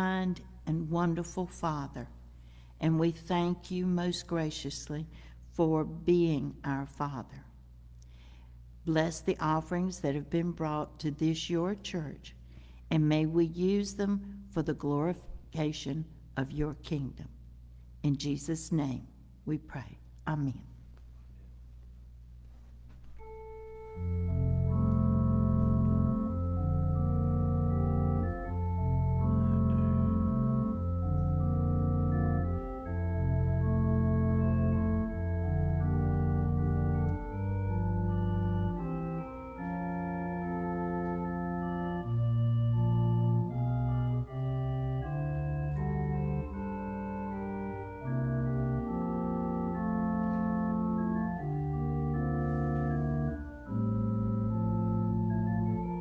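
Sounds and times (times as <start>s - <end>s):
organ playing held chords: 23.0s - 56.0s.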